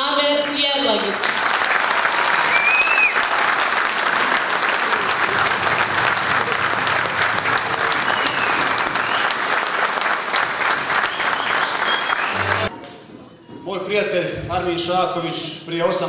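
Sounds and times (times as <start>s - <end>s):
audience applauding: 0.0s - 12.7s.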